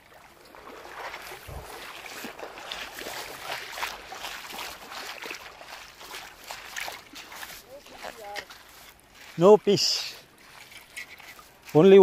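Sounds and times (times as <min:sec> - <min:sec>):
seawater splashing and lapping: 0:00.0 - 0:12.0
wind buffeting microphone: 0:01.2 - 0:02.7.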